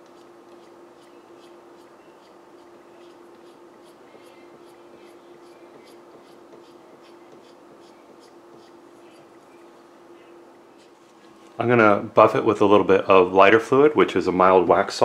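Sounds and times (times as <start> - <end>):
hand tool scraping wax: 0.0 - 9.4
steady low hum: 0.0 - 15.0.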